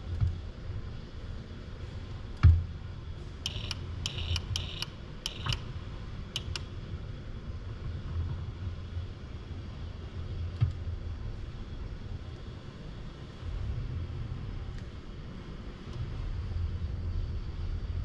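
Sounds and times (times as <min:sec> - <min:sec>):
robot gripper metallic clicks: 0:03.4 - 0:05.7, 0:06.4 - 0:06.7.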